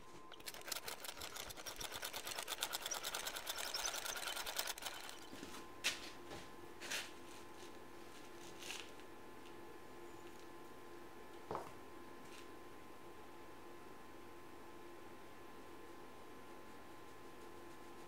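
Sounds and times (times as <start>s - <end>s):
sand rattling through sieve: 0.3s - 5.3s.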